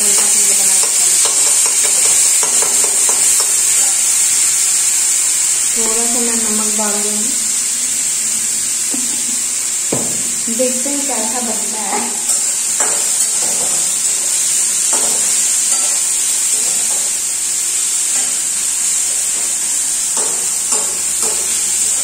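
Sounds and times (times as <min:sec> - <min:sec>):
metal spoon scraping a pan: 0:00.0 - 0:04.1, 0:11.8 - 0:17.1
tomatoes sizzling in oil: 0:00.0 - 0:22.0.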